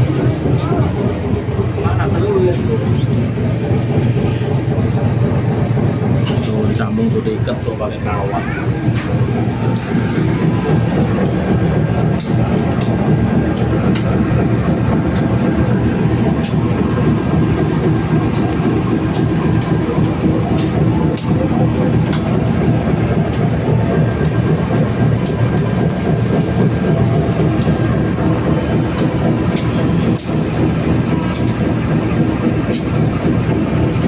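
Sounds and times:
diesel train engine idling: 0:00.0 - 0:34.0.

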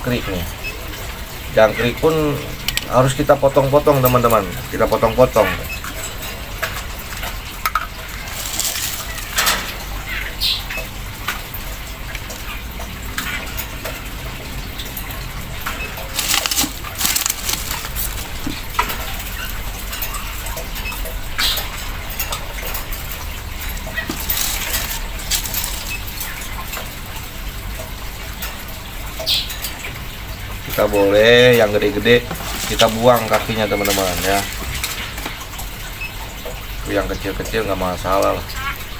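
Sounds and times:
rustles: 0:08.1 - 0:10.2, 0:15.6 - 0:20.5, 0:24.0 - 0:26.5, 0:32.3 - 0:35.4.

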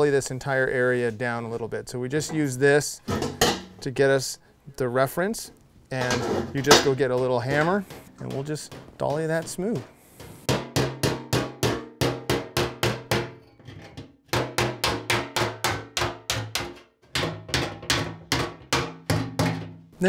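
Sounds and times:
hammer tapping on metal: 0:06.8 - 0:13.6, 0:14.3 - 0:19.7.

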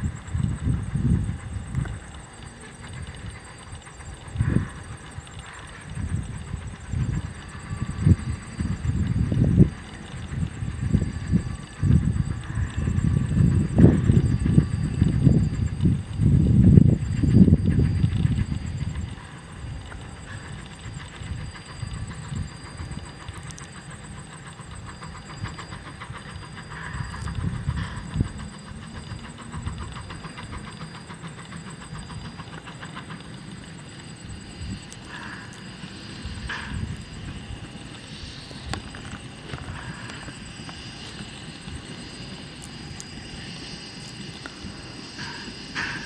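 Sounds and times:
steam locomotive exhaust chuffing: 0:00.0 - 0:46.0.

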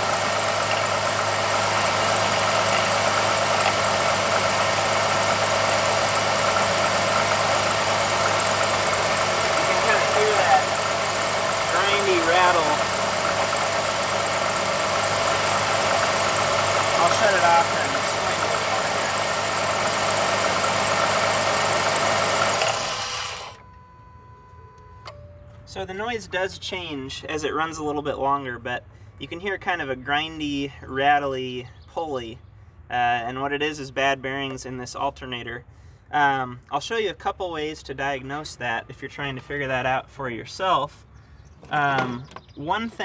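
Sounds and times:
grinding rattle from alternator pulley: 0:00.0 - 0:23.6
car engine idling: 0:00.0 - 0:24.8.

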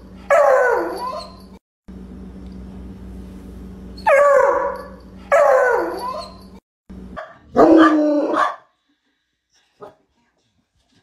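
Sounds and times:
dog barking: 0:07.2 - 0:08.7.

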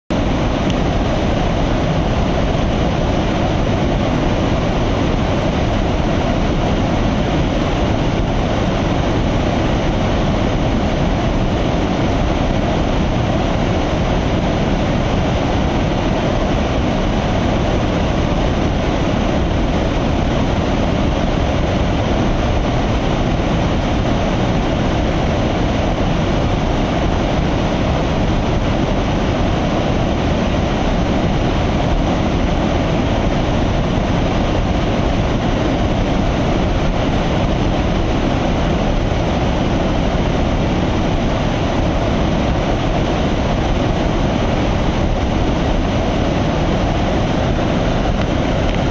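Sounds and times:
white water rushing: 0:00.1 - 0:48.9.

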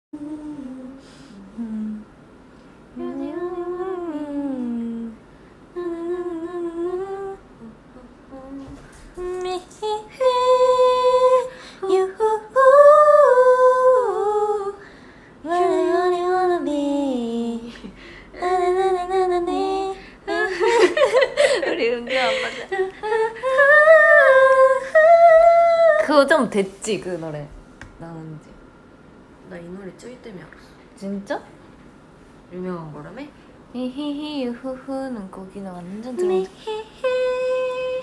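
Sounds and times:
woman humming a melody: 0:00.2 - 0:02.1, 0:03.0 - 0:05.2, 0:05.8 - 0:14.8, 0:15.4 - 0:26.0.

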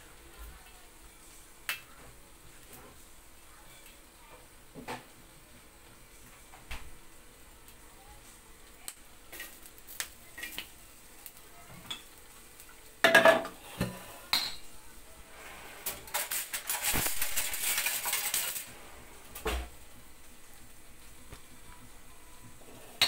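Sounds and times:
dishes clattering and clinking: 0:11.7 - 0:12.2, 0:13.0 - 0:14.7.

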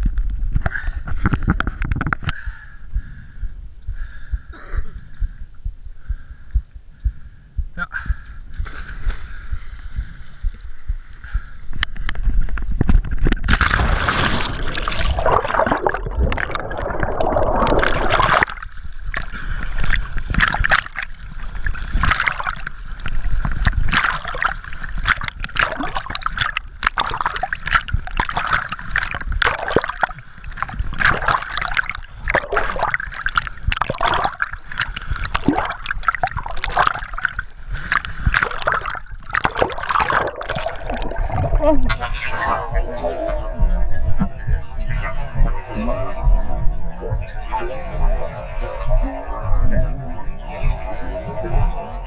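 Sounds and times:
person jumping into water: 0:08.5 - 0:10.7, 0:12.8 - 0:42.0
water splashing and gurgling: 0:12.3 - 0:43.2.

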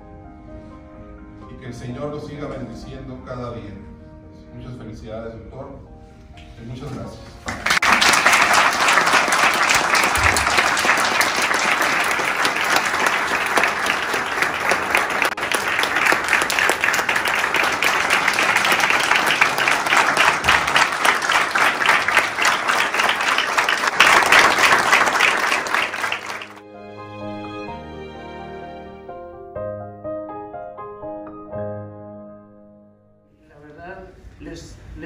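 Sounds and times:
people applauding: 0:07.4 - 0:26.6.

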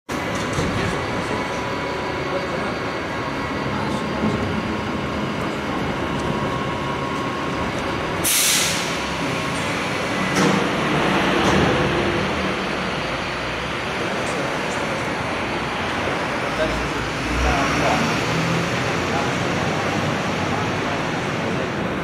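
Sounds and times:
passing traffic: 0:00.1 - 0:22.0
short hiss: 0:08.2 - 0:09.0.

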